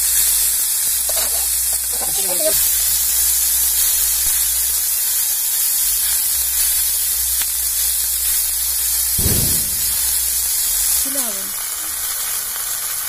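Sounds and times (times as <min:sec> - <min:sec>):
fish sizzling in oil: 0:00.0 - 0:13.0
low thump: 0:09.2 - 0:10.4.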